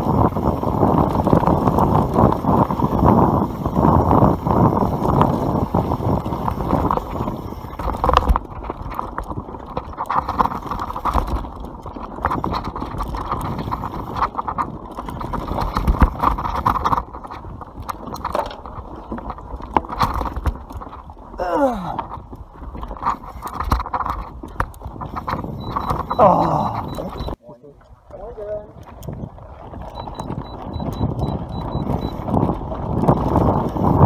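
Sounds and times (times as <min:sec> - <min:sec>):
bike tyres rumbling on dirt: 0:00.0 - 0:27.4, 0:28.0 - 0:34.0
bike rattling over bumps: 0:00.0 - 0:34.0
wind on microphone: 0:00.0 - 0:34.0.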